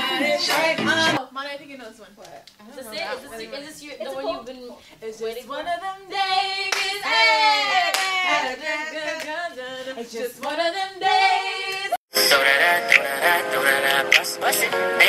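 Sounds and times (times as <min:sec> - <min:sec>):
women singing unaccompanied: 0:00.0 - 0:01.3, 0:02.7 - 0:12.0
hand claps: 0:06.7 - 0:06.9, 0:07.9 - 0:08.2.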